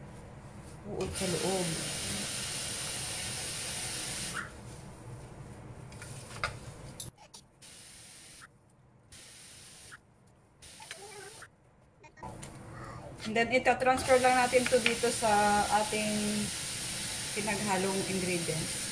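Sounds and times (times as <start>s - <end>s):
steady hiss: 14.1s - 18.9s.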